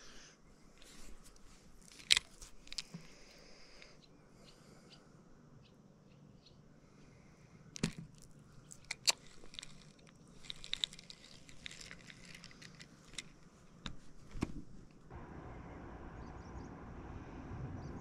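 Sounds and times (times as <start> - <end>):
faint steady background noise: 0.0 - 18.0
fishing rod and camera handling noise: 0.8 - 3.4, 7.8 - 15.0.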